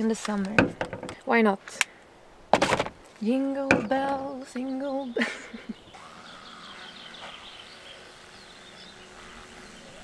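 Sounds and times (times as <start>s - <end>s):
songbird trilling: 3.8s - 10.0s.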